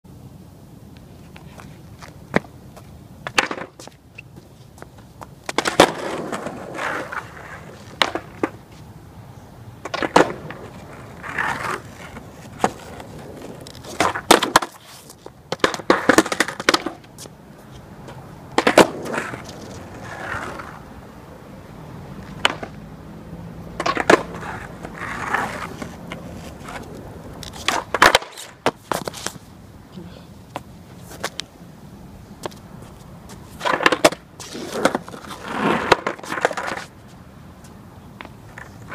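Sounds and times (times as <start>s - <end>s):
skateboard wheels rolling on asphalt: 0.1s - 38.9s
skateboard tail pops: 3.2s - 4.0s, 5.2s - 8.6s, 9.8s - 17.4s, 18.5s - 20.8s, 22.2s - 22.8s, 23.8s - 29.4s, 33.6s - 37.0s
skateboard clacking onto pavement: 3.2s - 8.6s, 9.8s - 17.4s, 18.0s - 20.9s, 22.2s - 22.8s, 23.8s - 29.5s, 33.3s - 37.0s, 37.6s - 38.9s.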